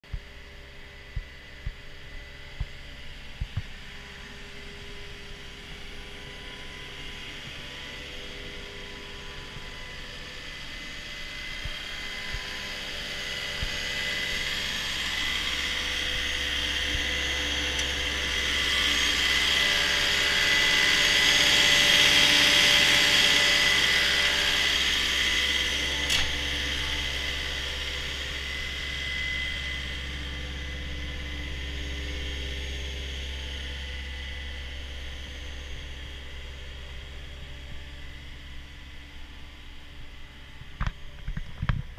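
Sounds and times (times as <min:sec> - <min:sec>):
diesel engine idling: 0:01.8 - 0:40.5.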